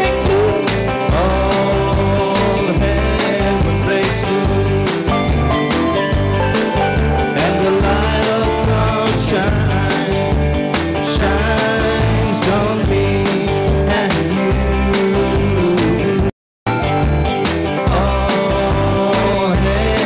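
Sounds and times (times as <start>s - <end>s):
live band music: 3.2s - 11.1s, 13.3s - 19.3s.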